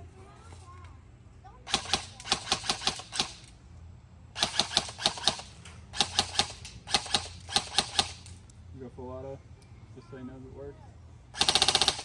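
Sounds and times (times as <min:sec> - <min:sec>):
airsoft rifle firing bursts: 0:01.7 - 0:03.5, 0:04.4 - 0:08.3, 0:11.3 - 0:12.0.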